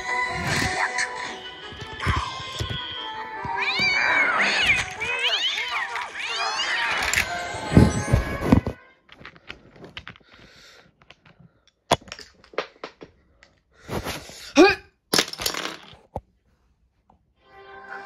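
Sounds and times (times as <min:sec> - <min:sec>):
sharp knocks and cracks: 0:11.9 - 0:13.2.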